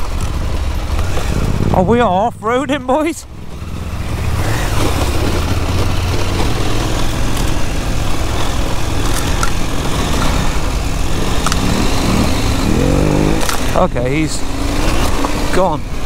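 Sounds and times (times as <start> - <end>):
motorcycle engine running: 0.0 - 16.0
tyres on dirt: 0.0 - 16.0
wind: 0.0 - 16.0
sharp clicks: 11.4 - 12.0, 13.4 - 13.7.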